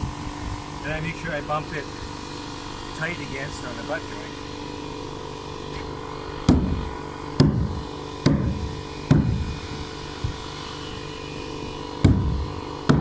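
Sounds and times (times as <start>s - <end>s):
sledgehammer thuds on plywood: 6.5s - 9.5s, 12.0s - 13.0s.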